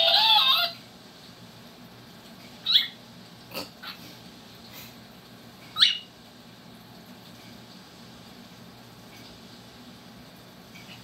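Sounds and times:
cockatiel chirping: 0:02.6 - 0:03.0.

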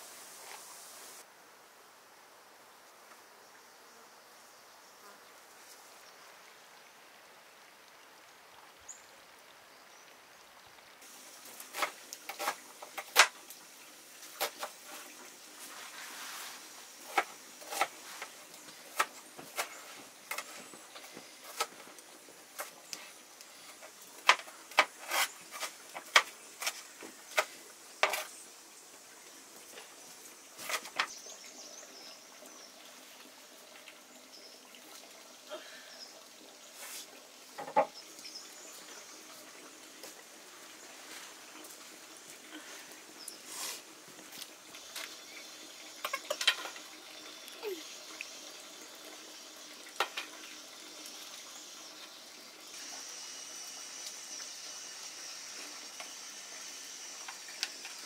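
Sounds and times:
faint steady hiss: 0:00.0 - 0:58.0.

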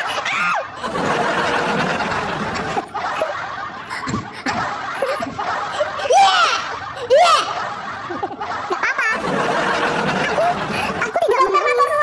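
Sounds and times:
laughter: 0:00.0 - 0:12.0.

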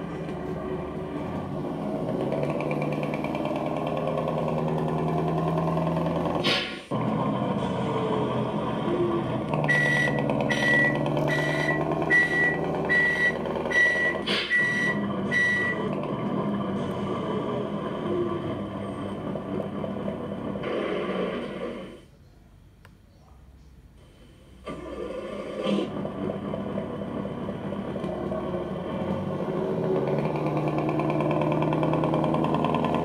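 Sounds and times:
diesel truck engine running: 0:00.0 - 0:22.0, 0:24.6 - 0:33.0
reversing beeper: 0:09.6 - 0:16.0.

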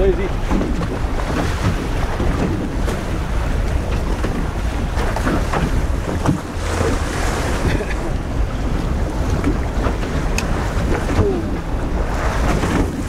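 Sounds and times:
waves slapping boat hull: 0:00.0 - 0:13.0
wind buffeting microphone: 0:00.0 - 0:13.0.

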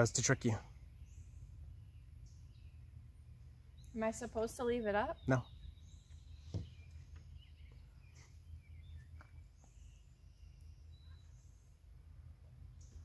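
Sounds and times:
faint bird chirps: 0:00.0 - 0:12.0
plastic jug set down knock: 0:06.5 - 0:06.7.

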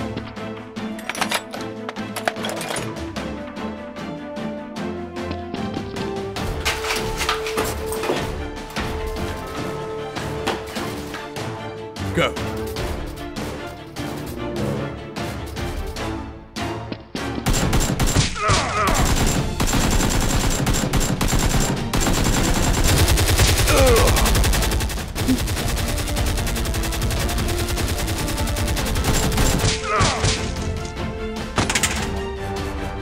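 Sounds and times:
automatic gunfire bursts: 0:18.9 - 0:29.7.

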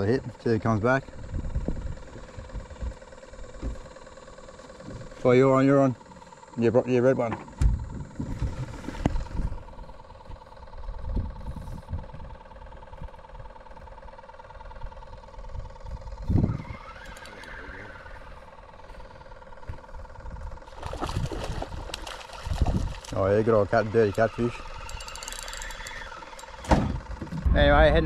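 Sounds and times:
faint steady hum: 0:00.0 - 0:28.0
thump on microphone: 0:07.3 - 0:08.4
wind on microphone: 0:15.6 - 0:16.8, 0:20.2 - 0:23.0.

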